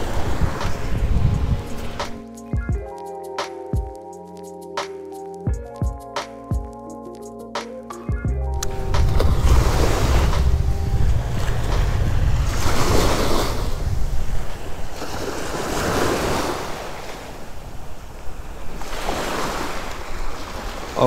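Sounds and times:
small waves breaking on sand: 0:00.0 - 0:02.2, 0:08.8 - 0:21.0
wind buffeting microphone: 0:00.0 - 0:02.2, 0:08.6 - 0:19.2.

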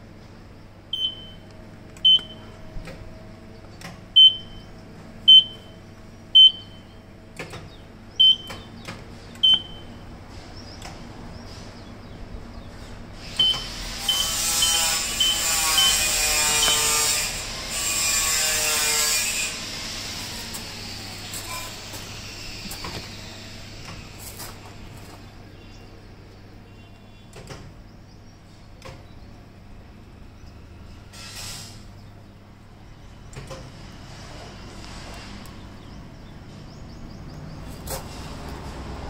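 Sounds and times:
control panel beeps: 0:01.0 - 0:02.5, 0:04.2 - 0:04.7, 0:05.3 - 0:05.8, 0:06.4 - 0:06.9, 0:08.2 - 0:08.6, 0:09.4 - 0:10.0, 0:13.4 - 0:16.0
loud rushing hiss: 0:13.2 - 0:18.3, 0:18.9 - 0:25.0.

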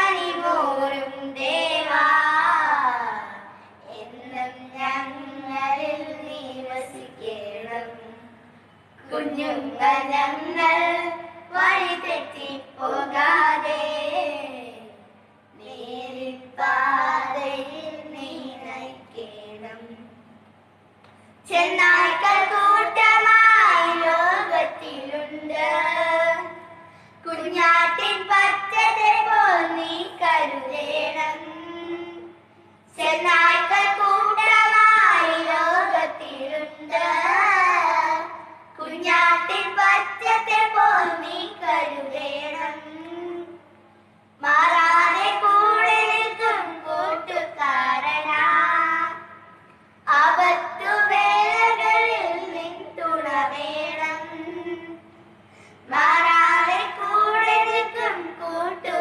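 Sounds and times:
children singing a devotional song: 0:00.0 - 0:08.3, 0:09.0 - 0:14.9, 0:15.6 - 0:20.0, 0:21.4 - 0:43.6, 0:44.4 - 0:55.1, 0:55.8 - 0:59.0
children singing: 0:33.0 - 0:42.8.

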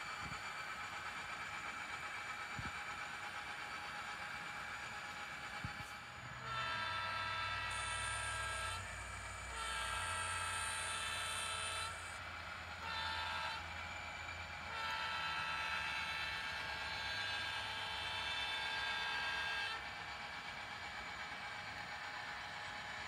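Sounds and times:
diesel engine hum: 0:03.2 - 0:23.0
locomotive horn blasts: 0:05.6 - 0:19.8.

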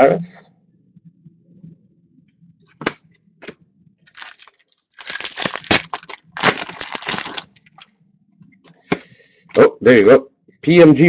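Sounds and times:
wrapper tearing and crinkling: 0:04.1 - 0:07.9.

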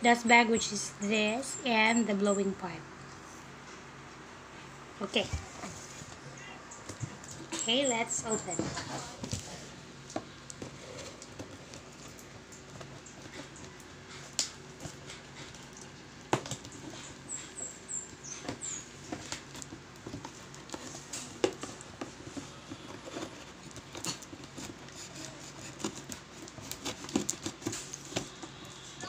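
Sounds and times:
cardboard scratching and rustling: 0:07.3 - 0:15.3, 0:15.9 - 0:29.0.

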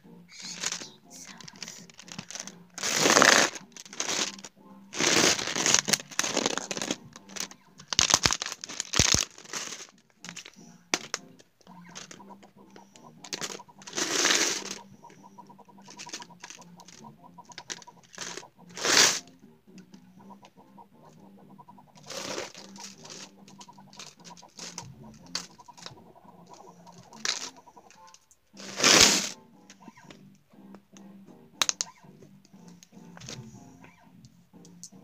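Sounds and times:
object shaken rustling: 0:00.3 - 0:10.6.

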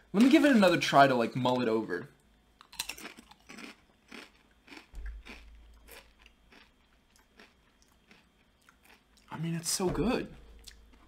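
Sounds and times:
person crunching potato chips: 0:02.6 - 0:09.4.

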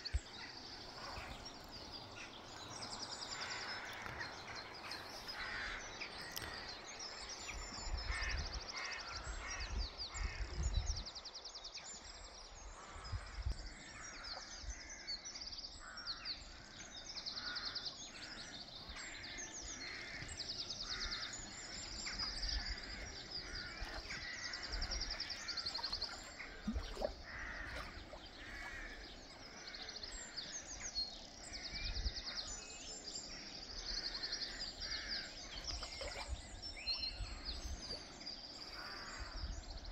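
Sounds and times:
birds trilling: 0:17.4 - 0:32.3, 0:33.0 - 0:39.6
harsh cawing calls: 0:27.2 - 0:27.8.

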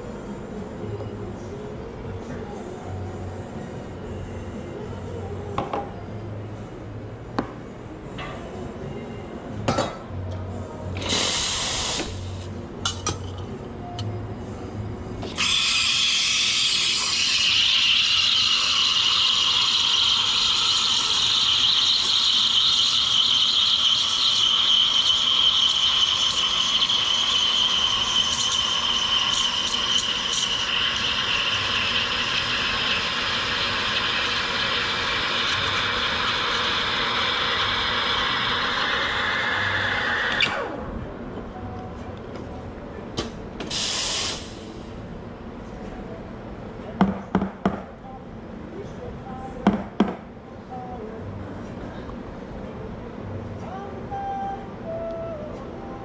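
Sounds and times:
steam wand hissing in milk: 0:11.0 - 0:12.2, 0:15.4 - 0:40.4.

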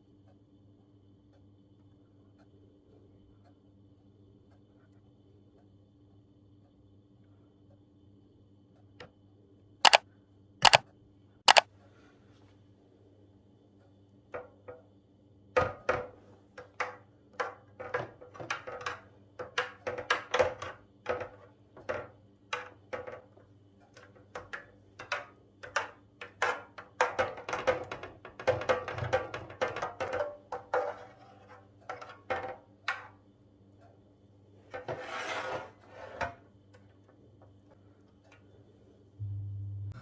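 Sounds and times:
spatula scraping metal tray: 0:30.8 - 0:32.2, 0:34.7 - 0:36.4.

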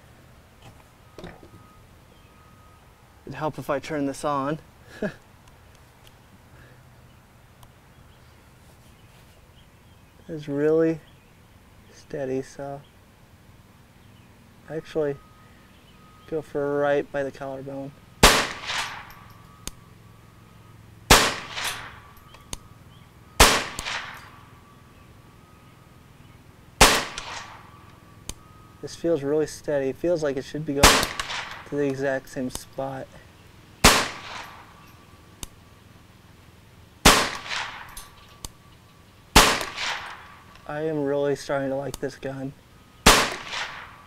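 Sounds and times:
pistol shots with rolling echo: 0:18.2 - 0:19.3, 0:21.1 - 0:22.3, 0:23.4 - 0:24.5, 0:26.8 - 0:27.8, 0:30.8 - 0:31.8, 0:33.8 - 0:34.9, 0:37.0 - 0:38.1, 0:39.4 - 0:40.5, 0:43.0 - 0:44.0.

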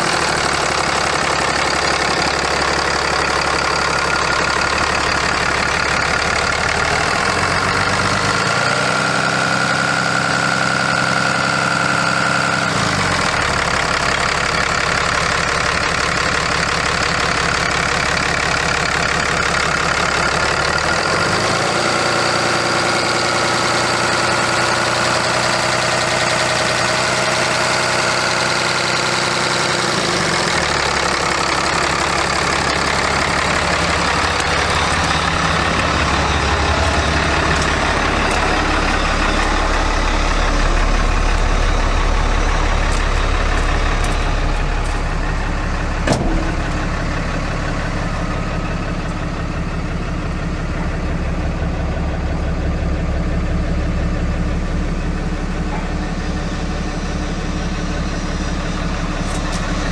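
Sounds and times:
diesel engine idling and revving: 0:00.0 - 0:59.9.

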